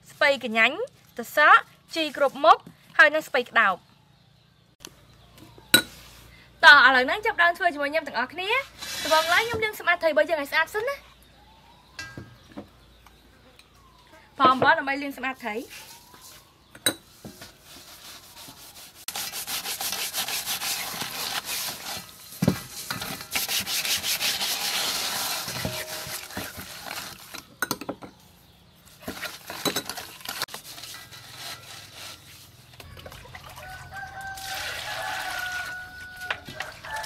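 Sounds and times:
salt scraping fish in metal bowl: 17.7s - 27.4s, 29.0s - 32.8s
rooster crowing: 33.5s - 37.0s.

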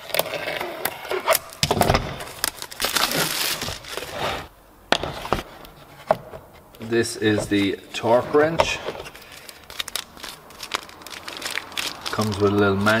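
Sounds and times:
shrink-wrap crackling and tearing: 0.0s - 4.2s, 9.0s - 13.0s.

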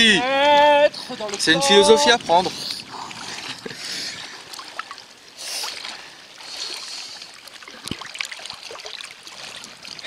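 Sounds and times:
water splashing from swimming: 0.0s - 10.0s.

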